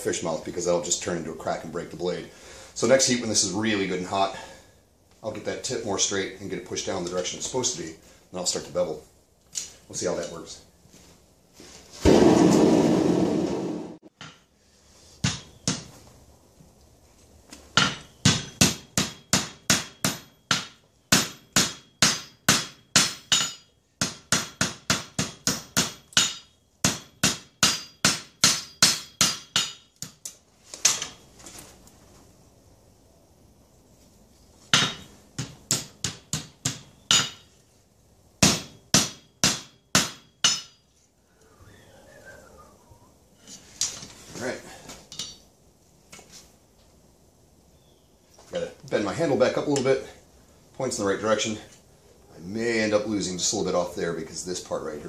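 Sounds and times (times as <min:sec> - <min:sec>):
hammer striking hot metal on anvil: 0:17.8 - 0:29.9, 0:34.8 - 0:37.5, 0:38.4 - 0:40.8.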